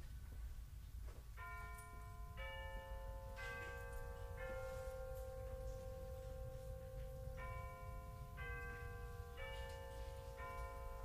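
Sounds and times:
four-note chime: 0:02.0 - 0:11.0.

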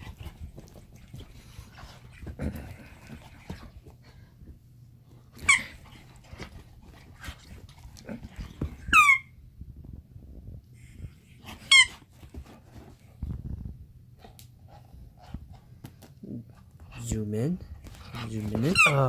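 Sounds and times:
dog chewing and mouthing: 0:00.0 - 0:04.1, 0:10.8 - 0:19.0
rubber toy squeaking: 0:05.4 - 0:05.8, 0:08.8 - 0:09.3, 0:11.6 - 0:12.1, 0:18.4 - 0:19.0.

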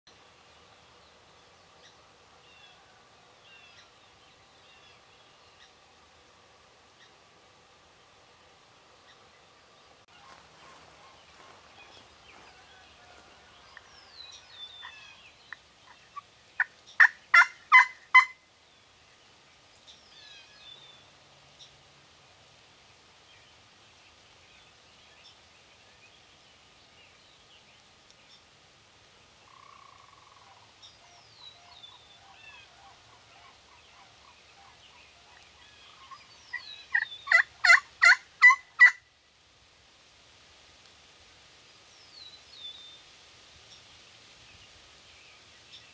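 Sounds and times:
turkey yelping: 0:17.0 - 0:18.3, 0:36.0 - 0:39.0.

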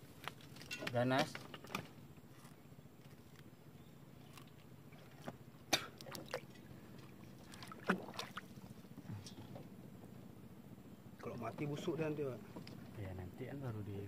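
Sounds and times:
faint steady background noise: 0:00.0 - 0:14.0
small water splashes: 0:04.2 - 0:09.0.

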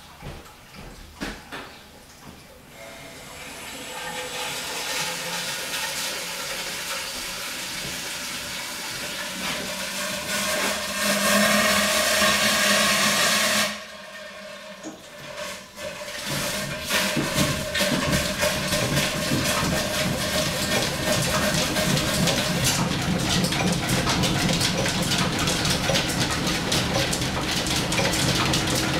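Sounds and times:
steam hissing from vent pipe: 0:02.7 - 0:25.2.

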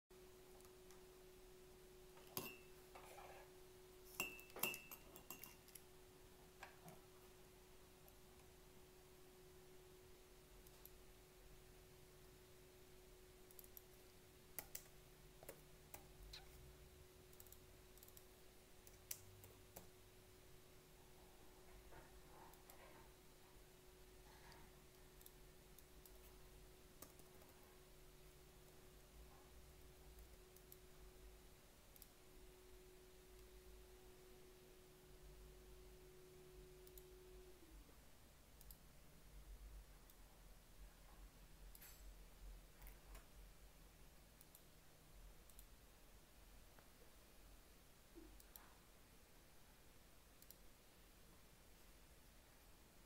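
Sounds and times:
faint steady hum: 0:00.1 - 0:53.0
computer keyboard and mouse clicks: 0:13.5 - 0:16.5, 0:17.3 - 0:18.2, 0:27.0 - 0:27.6
faint clicks: 0:50.4 - 0:50.6.

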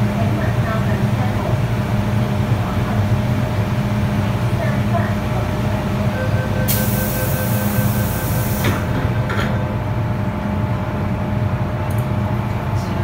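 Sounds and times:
train hum: 0:00.0 - 0:13.0
door warning beeps: 0:06.1 - 0:08.6
train doors shutting with hiss: 0:06.7 - 0:09.6.

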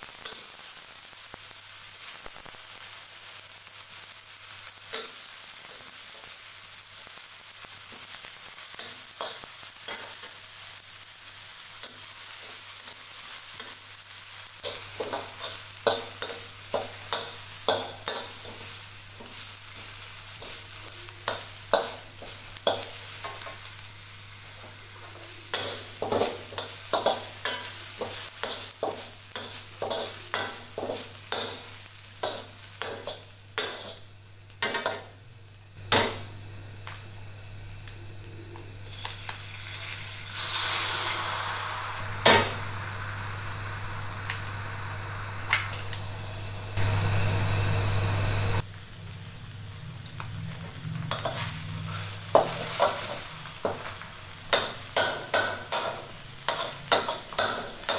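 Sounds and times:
food sizzling in oil: 0:00.0 - 0:57.9
spatula scraping a wok: 0:14.6 - 0:23.7, 0:24.6 - 0:34.1, 0:39.8 - 0:42.0, 0:50.5 - 0:57.9
steady hum: 0:40.7 - 0:57.9.

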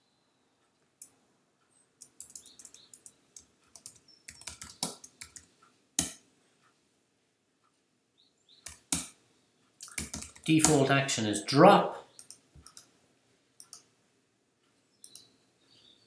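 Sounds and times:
computer keyboard typing: 0:02.0 - 0:06.2, 0:08.6 - 0:09.2, 0:09.8 - 0:11.1, 0:12.2 - 0:12.9, 0:13.6 - 0:13.9.

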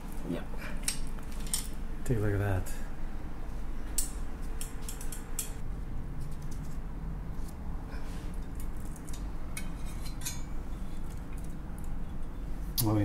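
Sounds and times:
low steady hum: 0:00.0 - 0:13.0
metal utensils clicking and scraping: 0:08.5 - 0:10.5.

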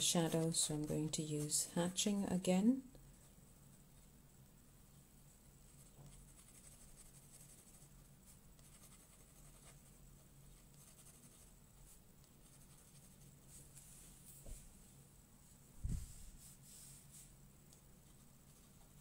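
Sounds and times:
low steady hum: 0:00.0 - 0:19.0
pen scratching on paper: 0:06.1 - 0:07.9, 0:08.6 - 0:13.2.

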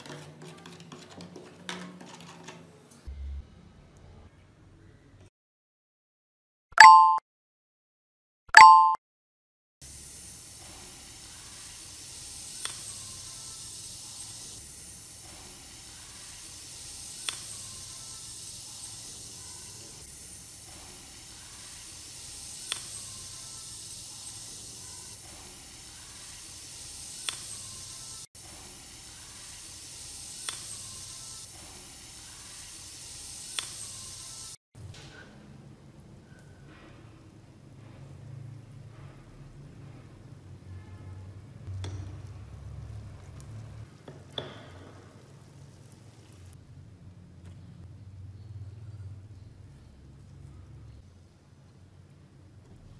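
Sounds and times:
short beep: 0:06.8 - 0:07.2, 0:08.5 - 0:09.0.

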